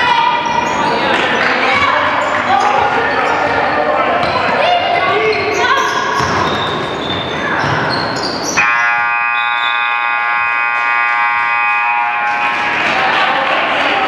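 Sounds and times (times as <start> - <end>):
crowd noise: 0.0 - 14.0
scoreboard buzzer tone: 8.6 - 12.8.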